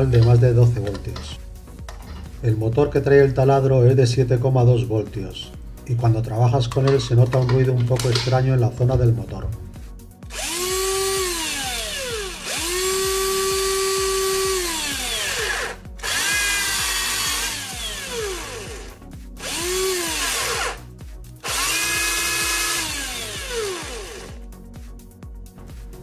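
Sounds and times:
cordless drill motor whining: 0:10.3 - 0:24.4.

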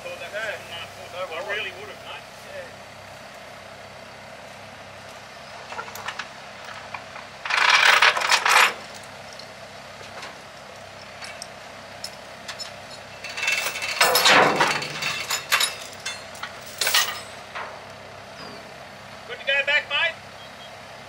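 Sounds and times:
low engine hum: 0:00.0 - 0:21.0
loud metal rattling: 0:05.7 - 0:08.8, 0:13.2 - 0:17.8
metal clinking and clattering: 0:05.7 - 0:10.4, 0:11.2 - 0:17.8.

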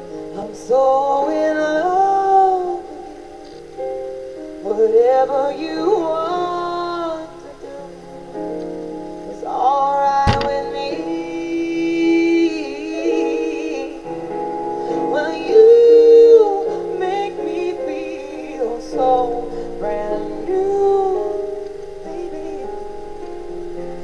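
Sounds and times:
woman singing soul song: 0:00.3 - 0:03.0, 0:04.6 - 0:08.1, 0:09.3 - 0:14.1, 0:14.9 - 0:23.1
sharp knock: 0:10.3 - 0:10.7.

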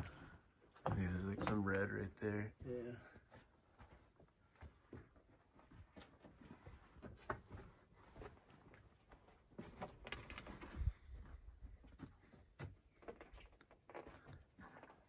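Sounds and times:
faint scuffs and rustles: 0:03.1 - 0:12.5.

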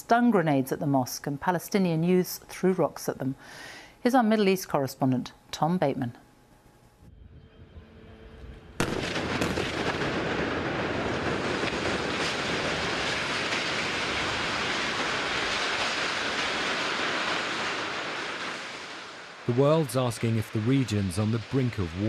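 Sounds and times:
loud explosion blast: 0:08.8 - 0:20.4.

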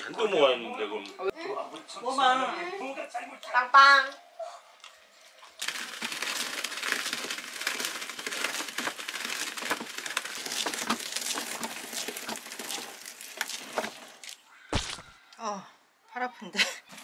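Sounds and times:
hand-cranked paper shredder cutting: 0:05.6 - 0:14.4.

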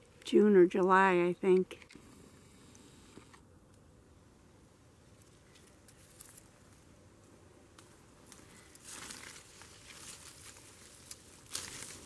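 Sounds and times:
leaves rustling and crinkling: 0:05.0 - 0:12.0.

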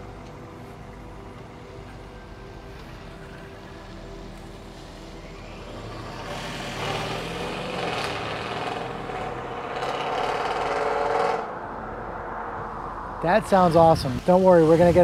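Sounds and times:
car engine accelerating: 0:05.0 - 0:15.0.

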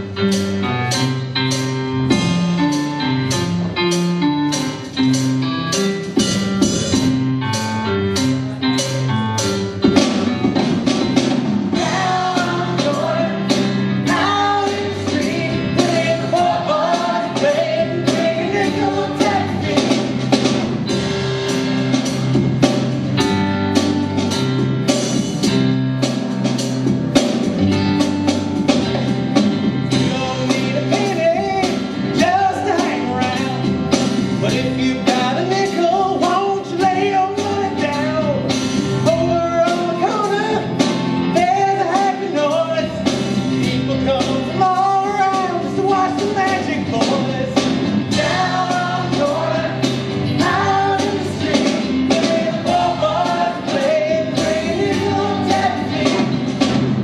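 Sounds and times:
steady drum beat: 0:00.0 - 0:57.0
upbeat instrumental accompaniment: 0:00.0 - 0:57.0
cast singing together: 0:11.8 - 0:20.3, 0:48.1 - 0:56.6.

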